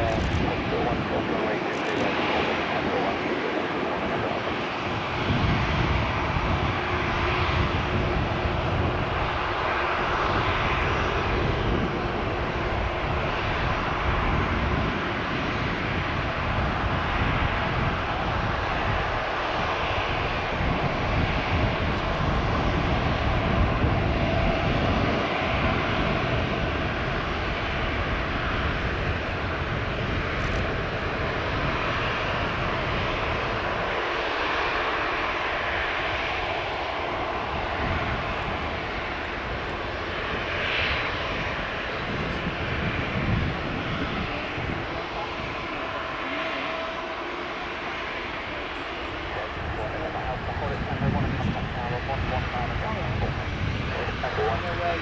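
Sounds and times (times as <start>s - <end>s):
jet engines running at low power: 0.0s - 55.0s.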